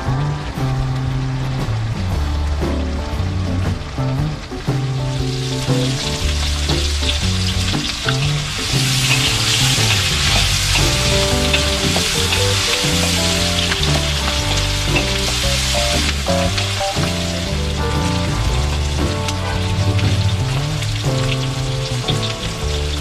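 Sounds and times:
background music with bass line: 0.0 - 23.0
food sizzling in a wok: 4.9 - 23.0.

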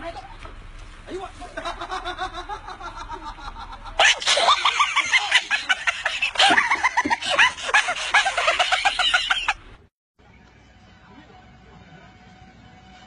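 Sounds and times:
high-pitched laughter: 1.6 - 9.6.

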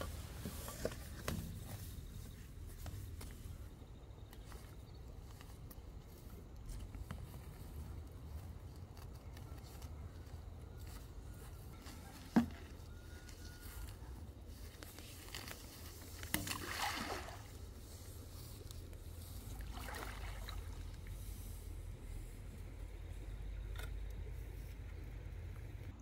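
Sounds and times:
hose splashing into pond: 15.2 - 21.7
water sloshing: 15.3 - 21.4.

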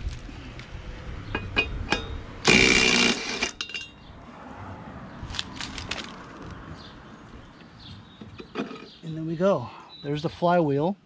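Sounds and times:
cordless power tool burst: 2.4 - 3.5
metal tools clinking: 3.2 - 4.0.

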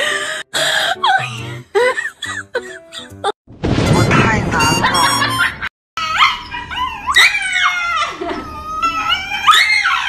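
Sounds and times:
dog howling and yelping: 6.0 - 10.0.

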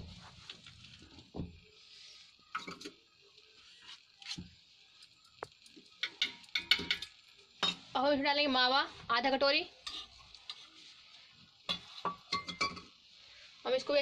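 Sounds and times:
faint sizzle: 0.0 - 14.0
spatula scraping and knocking pan: 6.0 - 7.9, 9.8 - 10.8, 11.7 - 13.0.

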